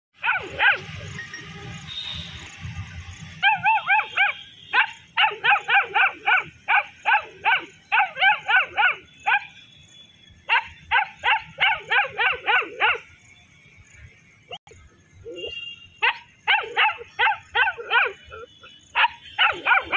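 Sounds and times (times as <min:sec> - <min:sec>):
puppy barking in high yaps: 0:00.2 - 0:01.0, 0:03.4 - 0:09.5, 0:10.5 - 0:13.0, 0:16.0 - 0:19.9.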